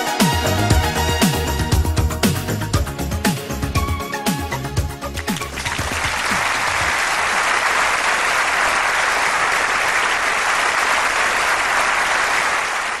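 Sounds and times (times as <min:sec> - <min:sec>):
song music: 0:00.0 - 0:06.9
audience applauding: 0:05.1 - 0:13.0.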